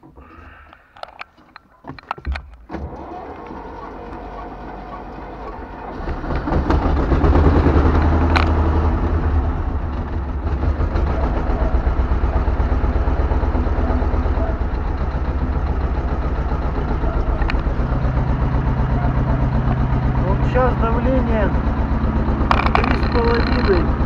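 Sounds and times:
diesel tractor engine idling: 2.9 - 24.0
sharp click: 22.5 - 23.9.

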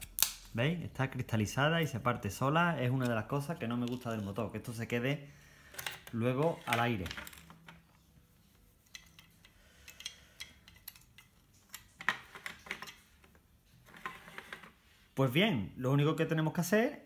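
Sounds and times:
plastic parts clicking and tapping: 8.9 - 13.4.

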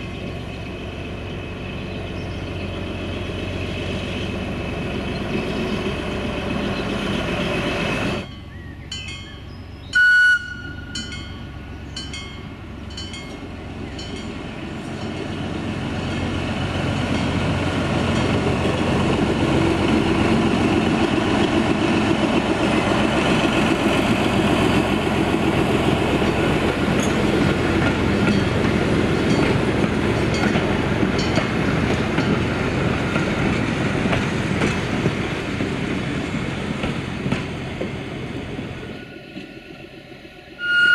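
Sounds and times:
diesel locomotive engine running: 0.0 - 40.9
train wheels on rails: 0.0 - 40.9
train horn blast: 10.0 - 11.0, 40.6 - 40.9.

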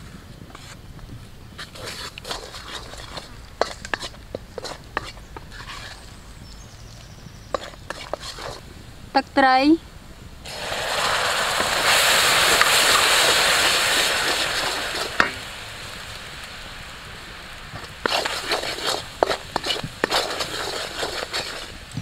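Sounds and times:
sauce bubbling crackles: 0.0 - 9.2, 10.2 - 22.0
wooden spatula scraping wok: 0.5 - 0.8, 1.6 - 6.2, 7.4 - 8.6, 10.5 - 15.4, 17.7 - 21.9
sauce sizzling in wok: 1.6 - 9.2, 10.4 - 22.0.

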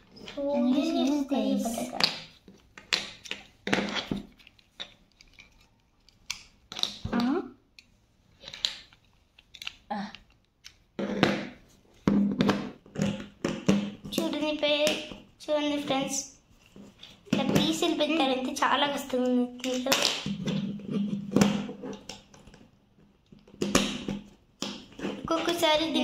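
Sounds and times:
plastic puzzle pieces clicking: 2.0 - 10.9.

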